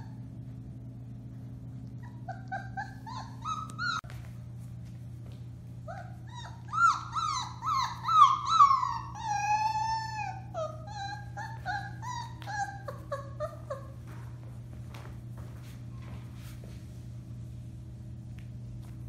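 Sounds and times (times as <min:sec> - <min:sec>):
puppy howling and yipping: 0:02.0 - 0:04.1, 0:05.9 - 0:14.0.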